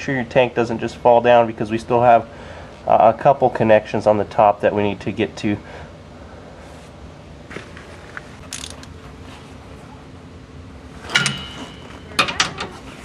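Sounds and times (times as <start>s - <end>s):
ratchet clicking: 8.5s - 8.9s.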